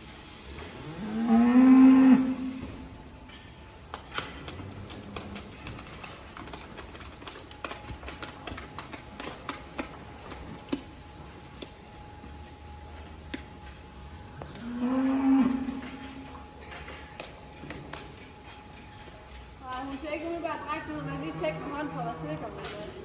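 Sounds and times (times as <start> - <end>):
cow mooing: 0.8 - 2.6, 14.5 - 15.8.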